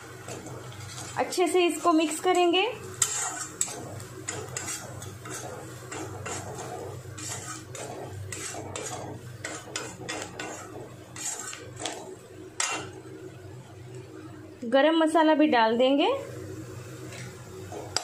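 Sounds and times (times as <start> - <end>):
metal spatula scraping a pan: 0.2 - 13.0.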